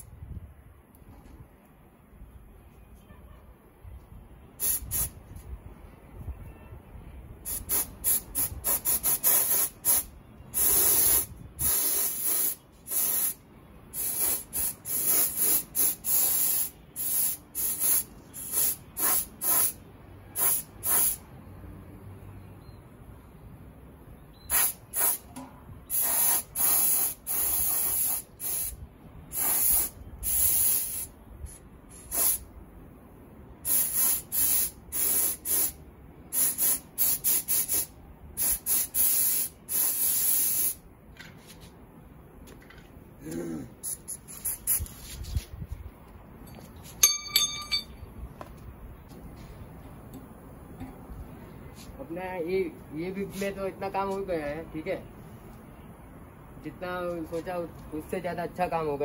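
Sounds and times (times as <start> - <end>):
paint spray gun hissing: 10.6 - 13.4, 14.0 - 19.7, 25.9 - 28.7.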